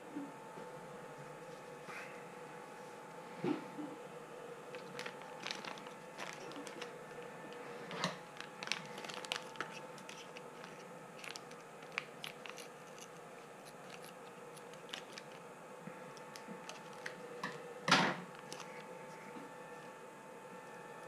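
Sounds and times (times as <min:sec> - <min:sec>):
faint steady hum: 0:00.0 - 0:21.0
plastic bag crinkling: 0:04.7 - 0:15.5, 0:16.1 - 0:17.6, 0:18.2 - 0:19.3.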